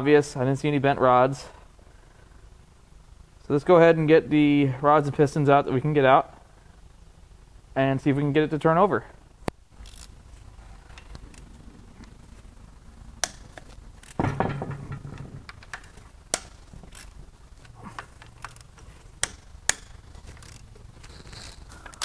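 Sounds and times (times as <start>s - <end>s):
ratchet clicking on bolts: 15.5s - 17.2s, 18.2s - 22.0s.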